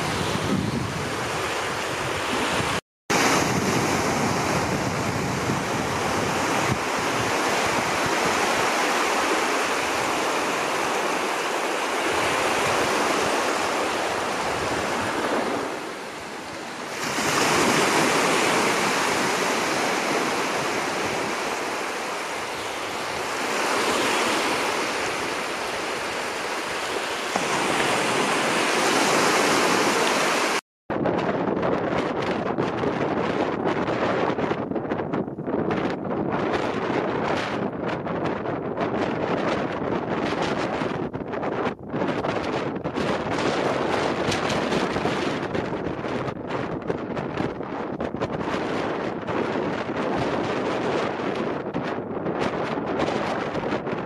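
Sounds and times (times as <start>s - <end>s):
sea surf breaking on shore: 0.0s - 30.6s
wind on microphone: 0.0s - 54.0s.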